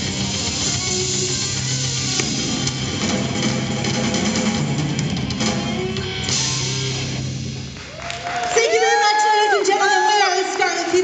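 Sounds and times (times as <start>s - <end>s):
live rock band playing: 0.0s - 8.0s.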